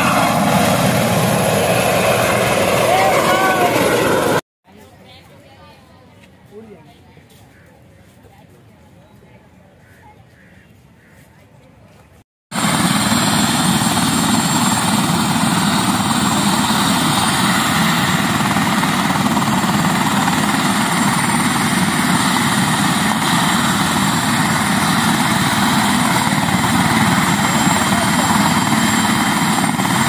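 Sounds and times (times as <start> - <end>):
helicopter engine whine: 0.0 - 4.4, 12.5 - 30.0.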